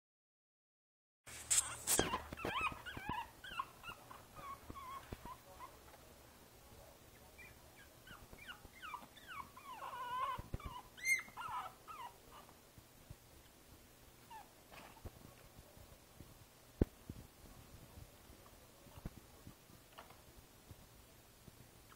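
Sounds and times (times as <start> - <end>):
puppy whimpering and whining: 1.6 - 5.8, 7.1 - 12.5, 14.2 - 15.0.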